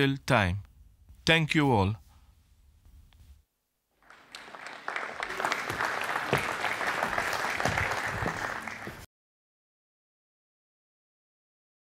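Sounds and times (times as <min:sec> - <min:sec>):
audience applauding: 0:04.0 - 0:09.1.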